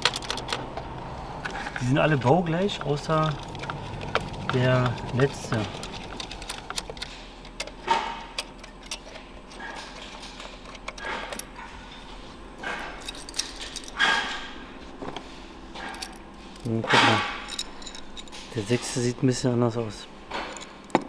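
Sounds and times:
metal tools clinking and rattling: 1.6s - 11.7s, 12.6s - 14.6s, 15.8s - 19.2s, 20.3s - 21.0s.

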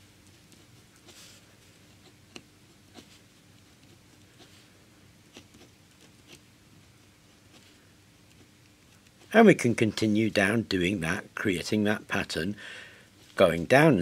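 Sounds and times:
pen scratching on paper: 0.3s - 9.4s.

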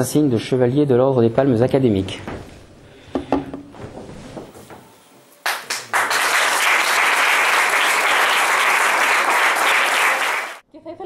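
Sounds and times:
audience applauding: 5.4s - 10.6s.

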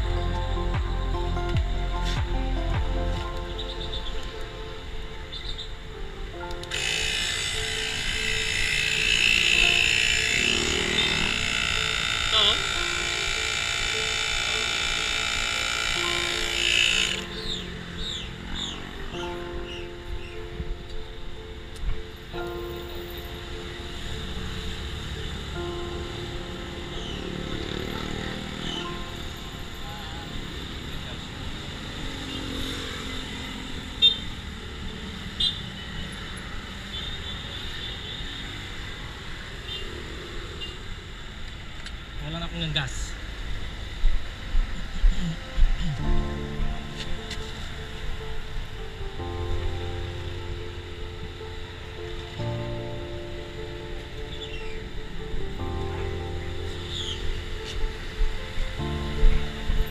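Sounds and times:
street traffic rumble: 0.0s - 59.9s
electric air inflator motor whine: 6.7s - 19.0s.

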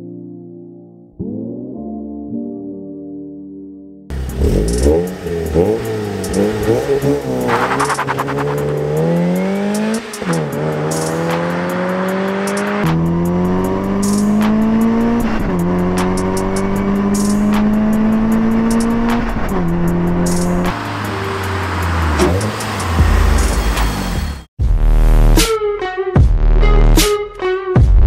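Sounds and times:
car engine accelerating through gears: 4.1s - 24.5s
background music with steady beat: 4.2s - 28.0s.

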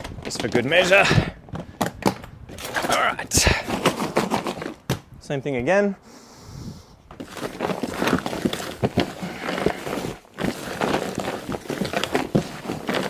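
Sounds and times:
hands churning dry potting mix: 2.7s - 4.8s, 7.2s - 13.0s.

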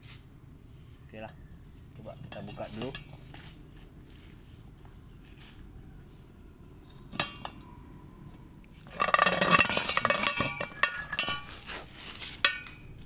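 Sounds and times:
rattle of metal knocks with ringing: 7.1s - 7.6s, 9.0s - 11.5s
metal clanking of universal joint: 8.9s - 11.5s.

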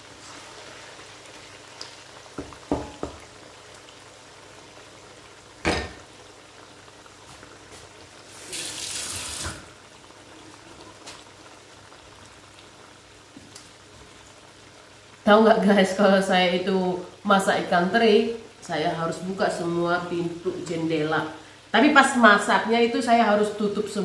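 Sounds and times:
kitchen tap running: 8.3s - 9.8s.

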